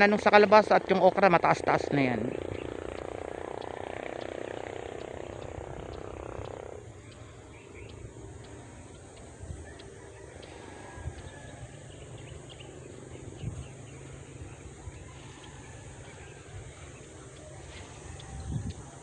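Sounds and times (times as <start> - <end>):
wind rumble on microphone: 5.2 - 6.7, 7.3 - 19.0.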